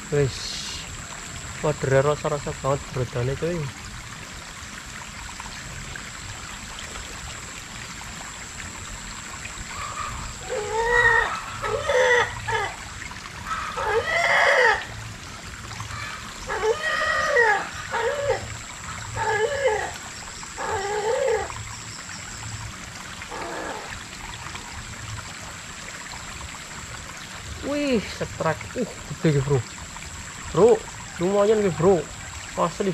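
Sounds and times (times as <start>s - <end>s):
stream trickling: 0.0s - 32.9s
animal giving short calls: 23.3s - 23.9s.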